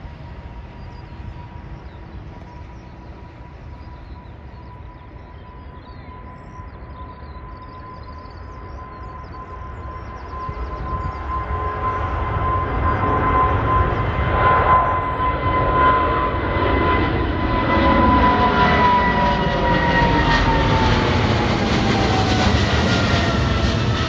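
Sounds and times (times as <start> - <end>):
jet airliner taking off: 0.0 - 24.0.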